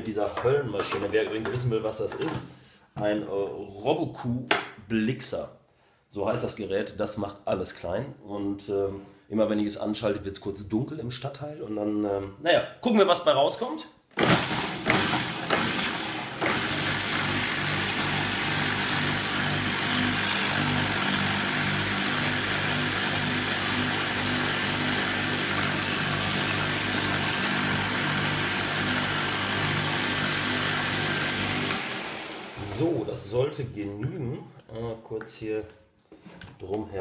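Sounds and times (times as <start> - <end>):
food processor blending: 14.2 - 32.9.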